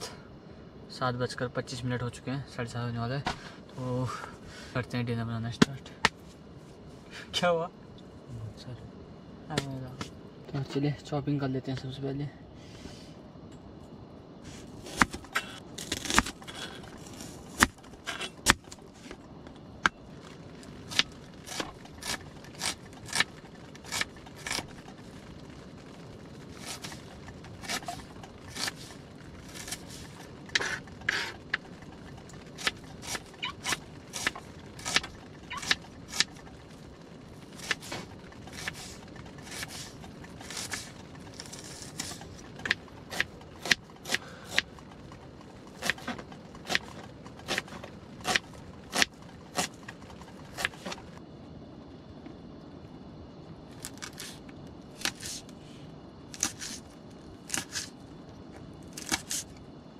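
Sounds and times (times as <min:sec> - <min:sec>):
knife scraping board: 0:14.5 - 0:18.8, 0:55.0 - 0:55.4, 0:56.3 - 0:56.8, 0:57.5 - 0:57.9.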